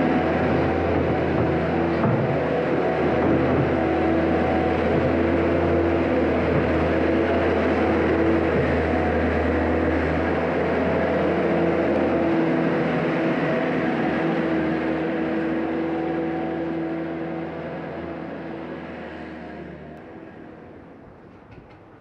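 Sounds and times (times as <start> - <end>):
diesel engine running: 0.0 - 21.3.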